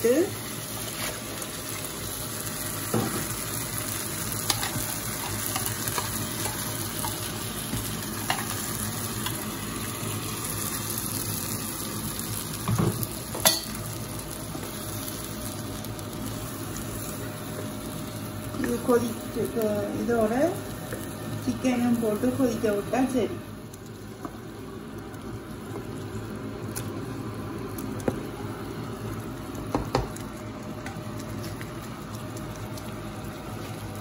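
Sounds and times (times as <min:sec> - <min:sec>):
gravy sizzling in a pan: 0:00.0 - 0:34.0.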